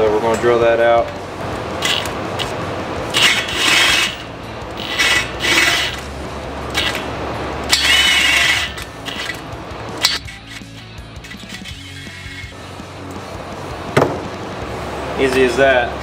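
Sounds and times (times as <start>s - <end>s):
cordless drill grinding through metal: 3.1s - 6.0s, 7.7s - 9.4s
drill running quietly: 3.2s - 6.0s, 7.7s - 9.3s.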